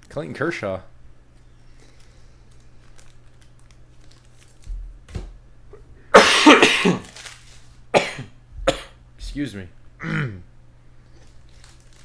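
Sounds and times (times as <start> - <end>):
man coughing: 6.1 - 7.1, 7.9 - 9.0, 10.0 - 10.5.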